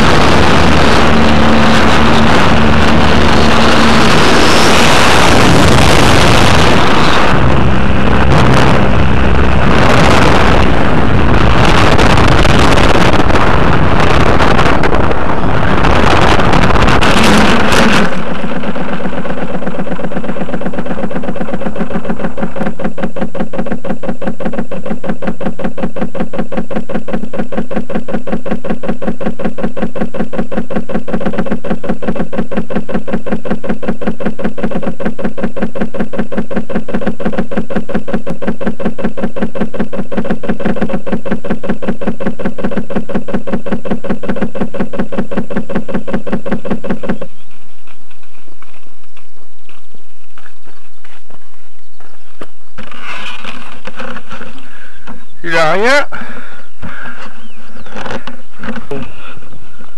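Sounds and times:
rushing air: 0.0s - 22.6s
model plane crashing: 0.0s - 51.5s, 52.4s - 56.1s
model plane motor: 0.0s - 56.2s
loud buzz with fast rattle: 0.0s - 59.9s.

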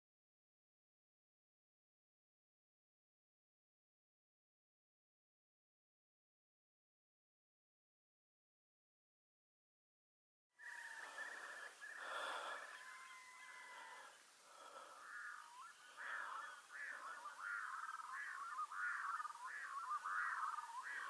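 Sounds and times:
birds calling: 10.6s - 21.0s
short rising-and-falling bird calls: 10.6s - 21.0s.

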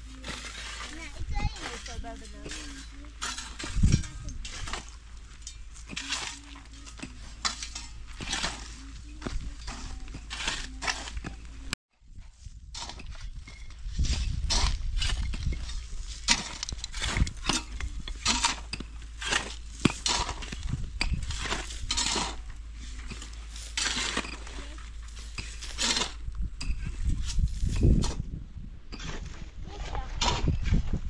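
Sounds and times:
shovels scraping stony ground: 0.0s - 31.0s.

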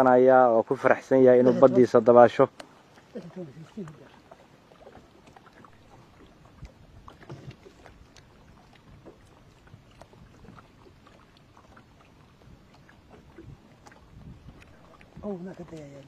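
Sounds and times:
water lapping around boat: 0.0s - 16.0s
light ticks: 2.5s - 3.1s.

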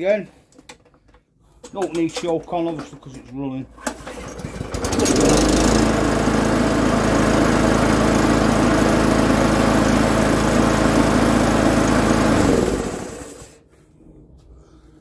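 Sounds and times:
lawnmower engine running: 3.8s - 13.6s.

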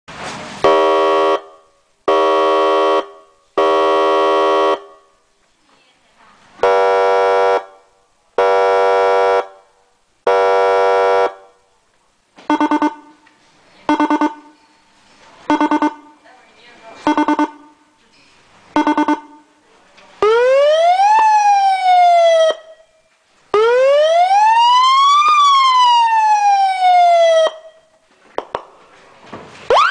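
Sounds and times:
emergency vehicle siren blasts: 0.6s - 5.0s, 6.6s - 7.8s, 20.2s - 27.9s, 29.7s - 29.9s
rapid siren pulses: 12.5s - 13.1s, 13.9s - 14.6s, 15.5s - 16.2s, 18.8s - 19.5s, 29.7s - 29.9s.

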